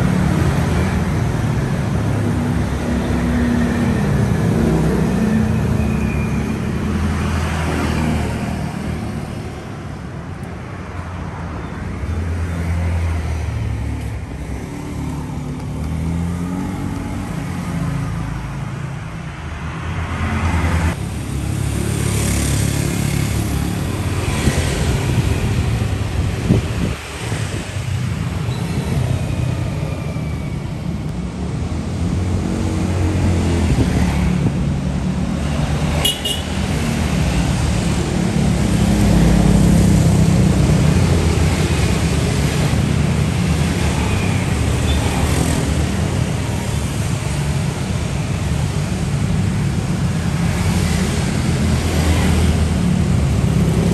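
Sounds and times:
vehicles passing on road: 0:00.0 - 0:53.9.

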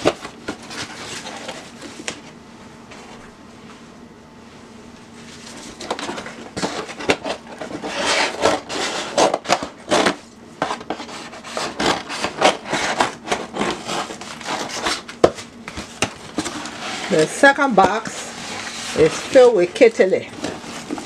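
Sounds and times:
cardboard box rustling and scraping: 0:05.3 - 0:21.0.

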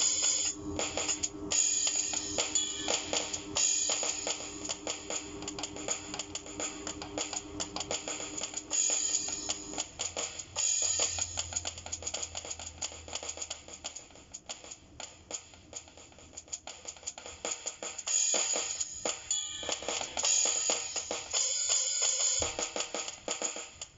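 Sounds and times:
low hum: 0:00.0 - 0:13.5
bass drum and cymbal hits: 0:00.0 - 0:23.9
electronic hi-hat pattern: 0:00.0 - 0:23.9
washing machine hum: 0:00.0 - 0:23.9.

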